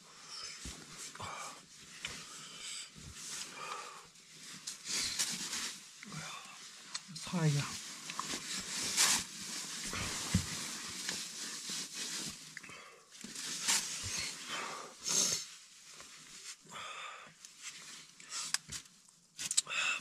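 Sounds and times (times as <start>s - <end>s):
tissue and clothing rustling: 0.2s - 16.7s.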